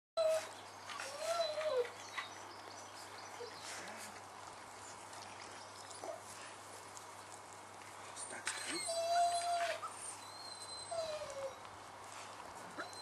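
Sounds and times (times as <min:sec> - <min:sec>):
puppies whining: 0:00.2 - 0:02.4, 0:05.4 - 0:06.4, 0:08.4 - 0:11.7, 0:12.6 - 0:13.0.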